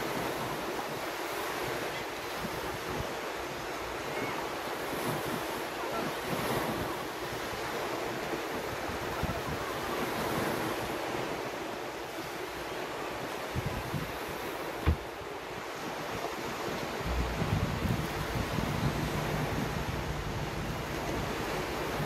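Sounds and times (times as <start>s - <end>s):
waves washing onto beach: 0.0s - 22.0s
wind buffeting microphone: 6.2s - 11.4s, 13.2s - 22.0s.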